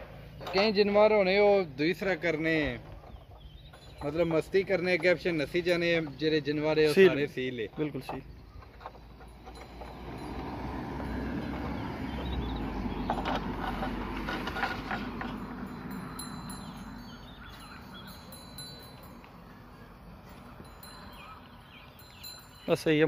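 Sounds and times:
small bells jingling: 3.6 - 7.5, 8.9 - 23.0.

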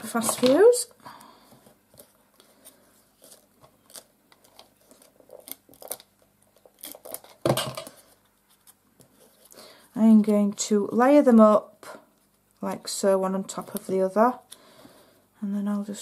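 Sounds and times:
clicks and crackles of tape: 3.2 - 7.6.

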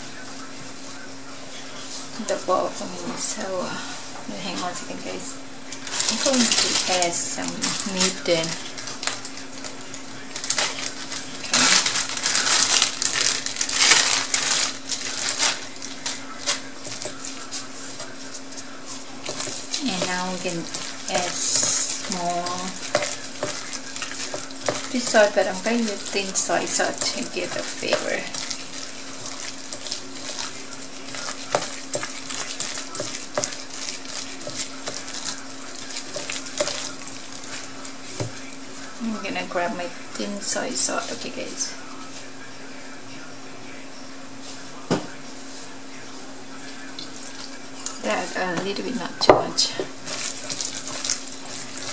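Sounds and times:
steady low hum: 0.0 - 51.9
wet squelching meat mixture: 5.6 - 41.3, 46.6 - 51.9
plastic bag crinkling: 5.6 - 42.3, 46.7 - 51.9.

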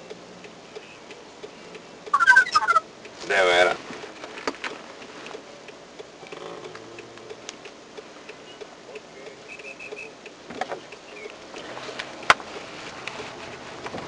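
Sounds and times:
small clicks and ticks: 4.1 - 14.0.

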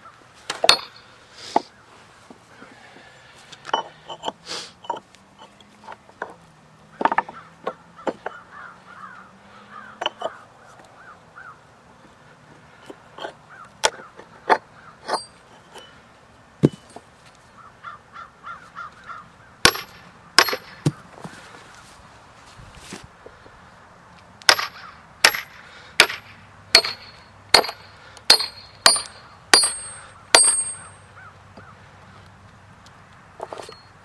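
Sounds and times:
wood blocks cracking apart: 19.6 - 20.9.

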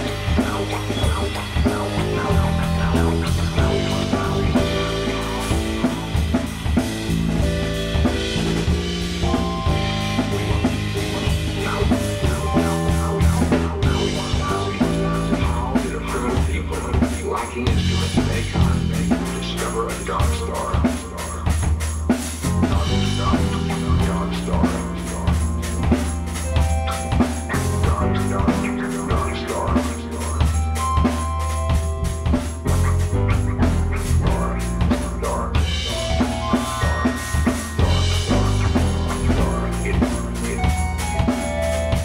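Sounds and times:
drum kit beat with cymbals: 0.0 - 42.0
keyboard notes: 0.0 - 42.0
sustained bass notes: 0.0 - 42.0.

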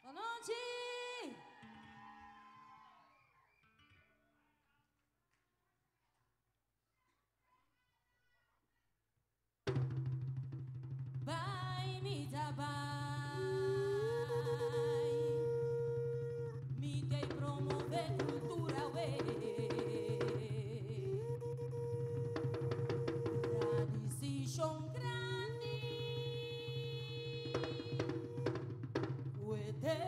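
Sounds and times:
woman singing through a pa: 0.0 - 1.4, 11.3 - 30.0
drums: 9.7 - 30.0.

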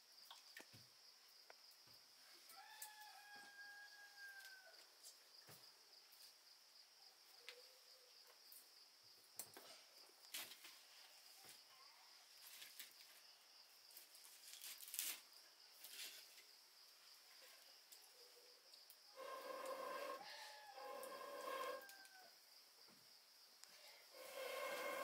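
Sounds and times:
insect chirring: 12.4 - 25.0.

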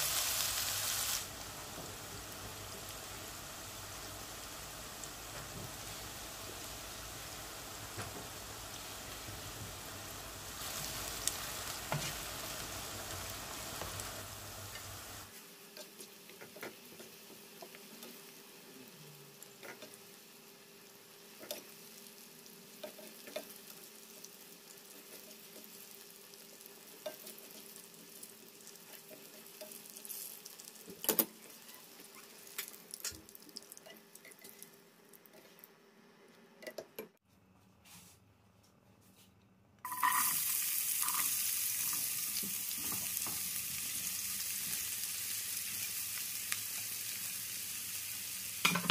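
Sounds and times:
vegetables sizzling in hot oil: 0.0 - 34.7, 39.9 - 48.9.

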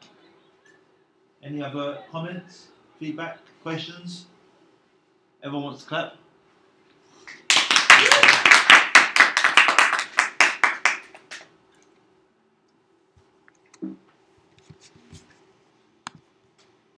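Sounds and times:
small group clapping: 7.2 - 11.5.

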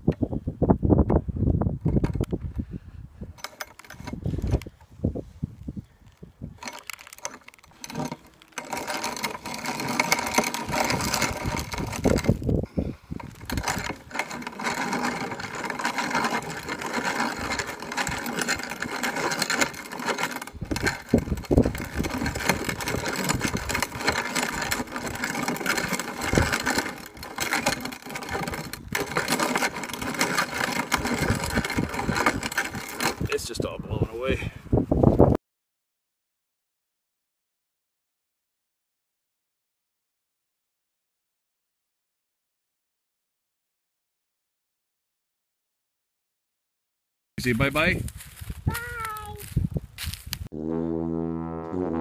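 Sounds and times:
wind rumbling on microphone: 0.0 - 6.7, 10.1 - 14.2, 20.5 - 27.3, 30.8 - 35.4, 47.4 - 50.5
grain mill grinding corn: 6.6 - 33.5.

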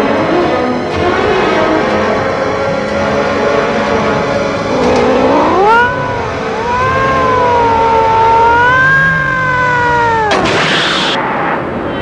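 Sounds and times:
cat yowling: 5.5 - 11.2.

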